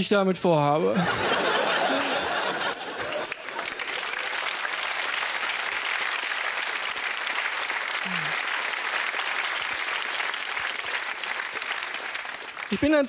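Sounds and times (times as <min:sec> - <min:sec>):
audience applauding: 0:01.4 - 0:13.0.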